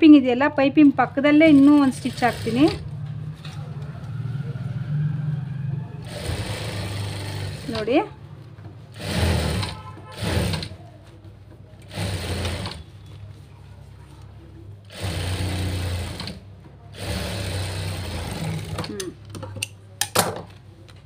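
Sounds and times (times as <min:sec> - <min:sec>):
sewing machine stitching: 0:01.4 - 0:02.8, 0:06.0 - 0:08.1, 0:08.9 - 0:10.8, 0:11.8 - 0:13.0, 0:14.9 - 0:19.2.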